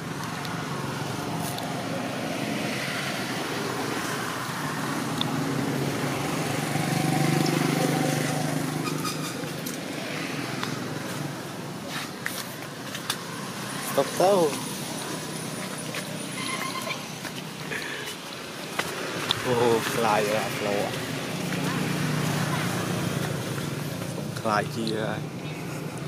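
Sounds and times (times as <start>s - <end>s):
vehicle engine passing by: 0.6s - 11.4s.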